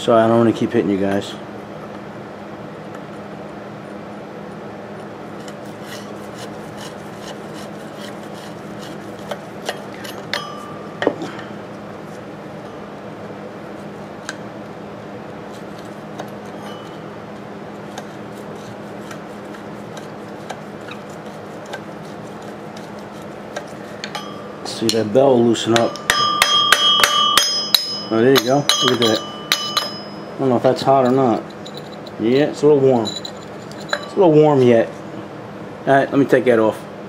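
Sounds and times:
steady low hum: 0.0 - 37.0
sharp metal knocks ringing: 9.6 - 11.2, 16.5 - 17.1, 24.0 - 34.3.

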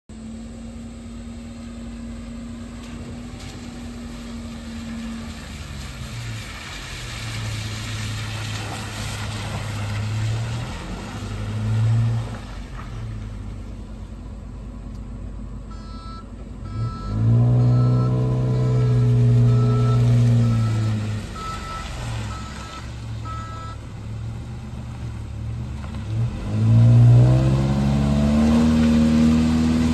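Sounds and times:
deep engine drone: 0.0 - 29.9
reversing beeper: 15.7 - 23.8.

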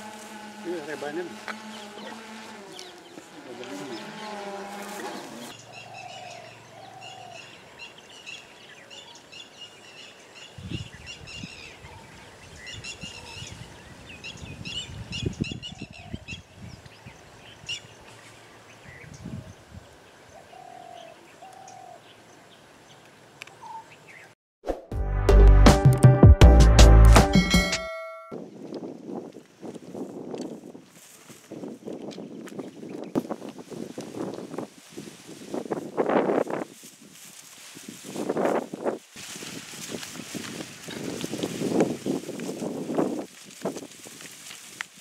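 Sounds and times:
birds chirping and singing: 0.9 - 24.3
musical chime with a beat: 25.0 - 28.4.

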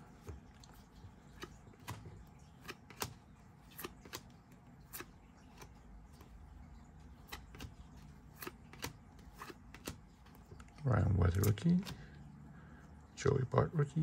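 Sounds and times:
cards sliding with soft clicks: 0.1 - 6.4, 7.2 - 10.7.

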